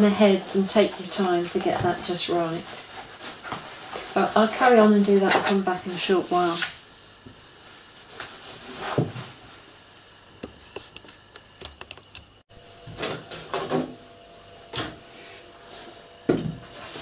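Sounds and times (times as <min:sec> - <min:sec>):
rustling of cloth and stuffing: 0:00.0 - 0:06.7.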